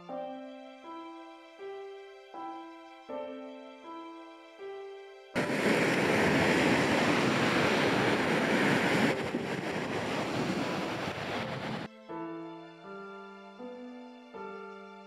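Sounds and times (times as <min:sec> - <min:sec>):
piano music: 0:00.0 - 0:15.0
wind on microphone: 0:05.4 - 0:11.9.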